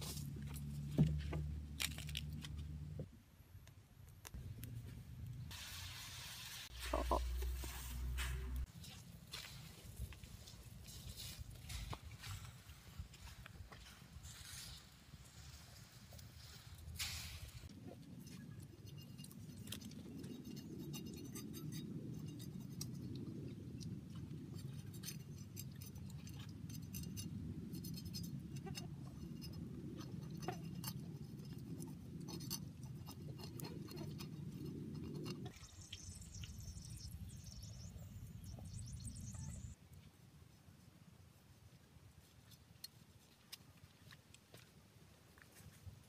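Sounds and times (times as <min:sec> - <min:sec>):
steady low rumble: 0:06.7 - 0:08.7.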